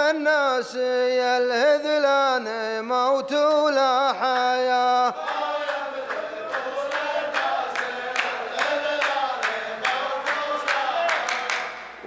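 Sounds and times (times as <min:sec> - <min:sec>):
men chanting in unison: 0:00.0 - 0:11.8
hand claps: 0:05.2 - 0:12.0.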